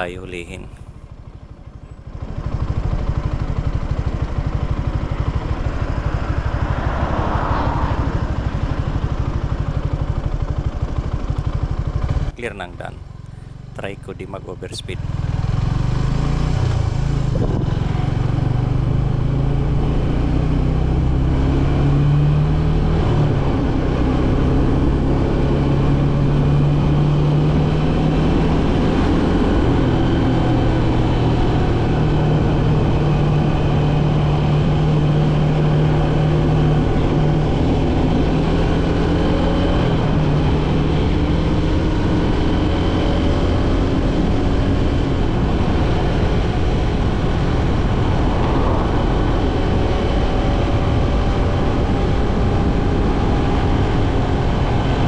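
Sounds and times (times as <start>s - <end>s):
motorcycle engine accelerating: 0.7s - 55.0s
wind on microphone: 17.3s - 17.8s, 45.2s - 55.0s.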